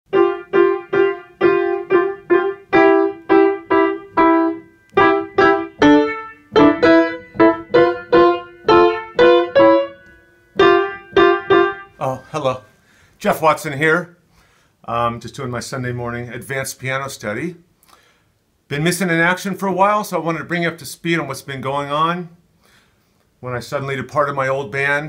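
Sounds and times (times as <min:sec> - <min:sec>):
piano notes: 0:00.1 - 0:12.6.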